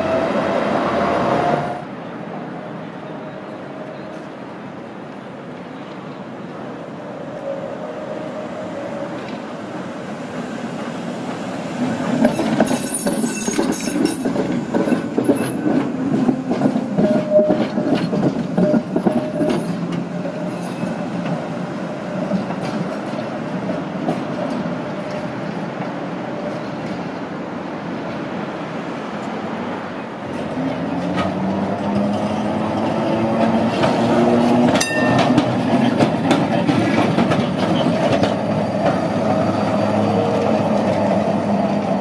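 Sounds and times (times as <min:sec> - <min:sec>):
tram wheels clattering over rails: 0:08.8 - 0:42.0.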